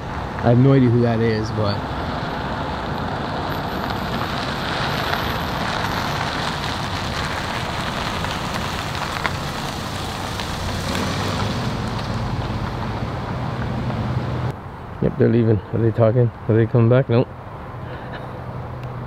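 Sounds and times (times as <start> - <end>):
car engine hum: 0.0 - 14.9
tyres on rough road: 0.0 - 19.0.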